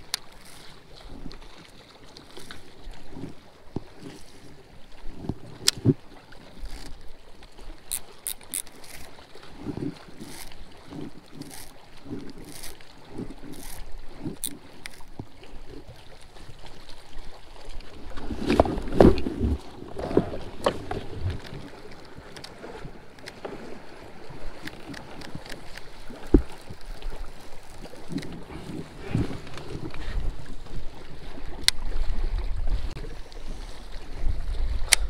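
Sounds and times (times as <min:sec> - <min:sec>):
clicks and knocks from fishing reel: 0:00.0 - 0:00.8, 0:05.1 - 0:15.8, 0:20.0 - 0:23.7, 0:24.5 - 0:30.1, 0:31.6 - 0:31.8, 0:34.8 - 0:35.0
water lapping against kayak hull: 0:00.0 - 0:35.0.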